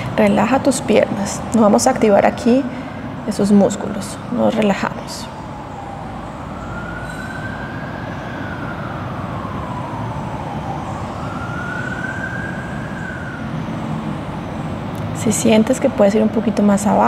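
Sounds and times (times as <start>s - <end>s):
steady background rumble: 0.0s - 6.7s
emergency vehicle siren wailing: 0.0s - 16.8s.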